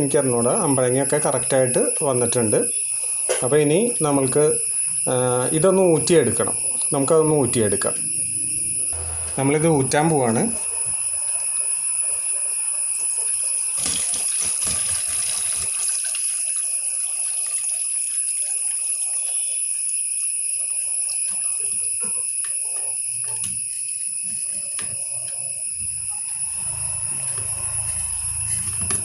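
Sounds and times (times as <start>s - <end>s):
steady high-pitched whine: 0.0s - 29.0s
brine pouring and splashing: 13.8s - 19.4s.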